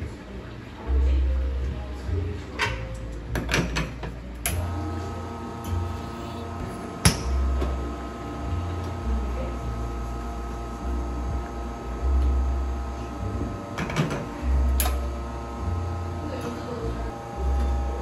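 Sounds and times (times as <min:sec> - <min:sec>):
espresso pump humming: 0:04.6 - 0:18.0.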